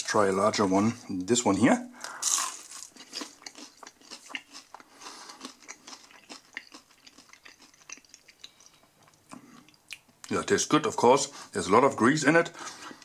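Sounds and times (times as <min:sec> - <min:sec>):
crunchy chewing: 0:02.0 - 0:10.0.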